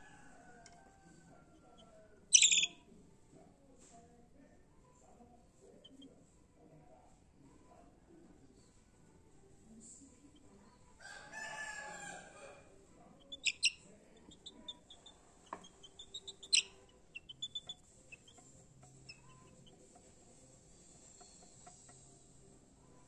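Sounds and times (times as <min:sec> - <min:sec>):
high bird chirps: 0:02.3 - 0:02.8, 0:13.3 - 0:13.8, 0:14.5 - 0:18.4.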